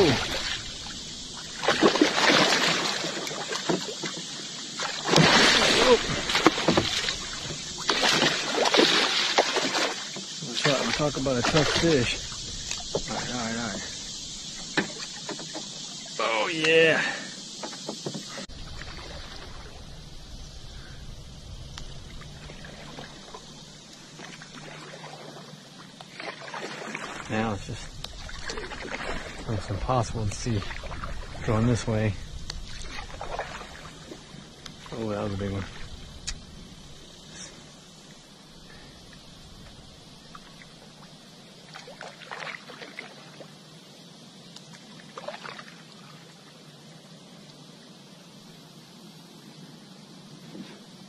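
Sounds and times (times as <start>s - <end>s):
water splashing around kayak: 0.0s - 47.0s
steady hiss: 0.0s - 51.0s
low steady rumble: 18.5s - 24.1s.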